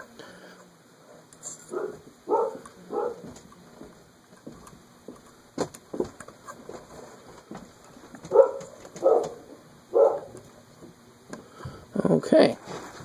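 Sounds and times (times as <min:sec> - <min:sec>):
dog barking: 0:01.7 - 0:03.4, 0:08.3 - 0:10.4.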